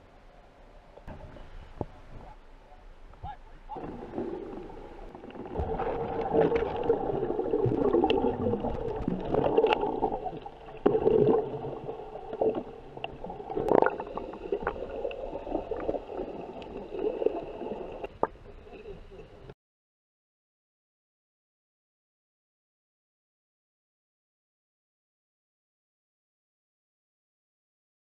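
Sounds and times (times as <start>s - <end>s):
underwater churning and bubbles: 3.7s - 19.5s.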